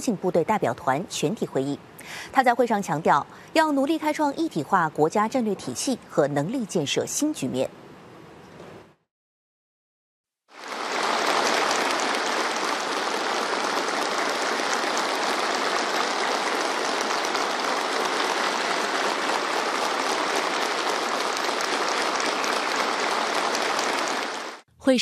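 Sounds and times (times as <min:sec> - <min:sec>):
audience applause: 0:10.6 - 0:24.6.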